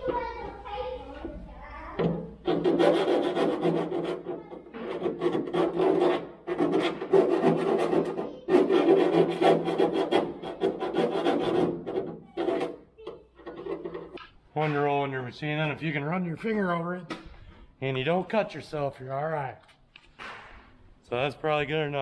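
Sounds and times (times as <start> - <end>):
hand file rasping on sheet metal: 2.4 - 14.2.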